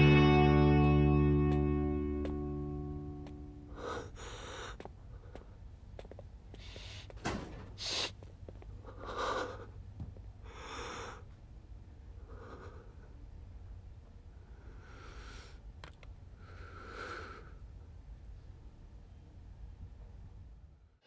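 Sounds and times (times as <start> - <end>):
low steady hum: 0.0 - 7.2
man breathing heavily: 3.6 - 5.8, 6.5 - 7.2, 7.8 - 11.4, 12.2 - 13.2, 16.3 - 17.8
sharp sniff: 7.8 - 8.2.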